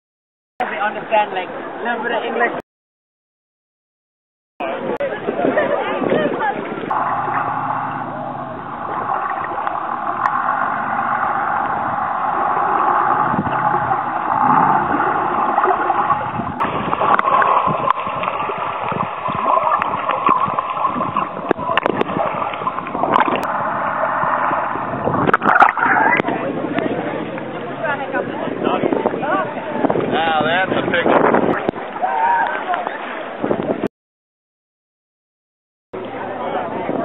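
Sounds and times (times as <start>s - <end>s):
muffled underwater rushing water: 4.6s - 33.9s.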